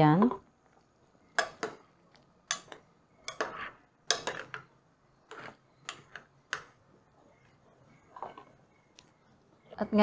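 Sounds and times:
metal spoon scraping a pot: 2.5s - 6.7s, 8.0s - 8.6s.

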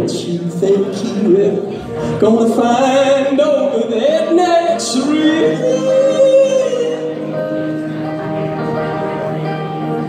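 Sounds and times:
man singing: 0.0s - 7.7s
electric guitar: 0.0s - 10.0s.

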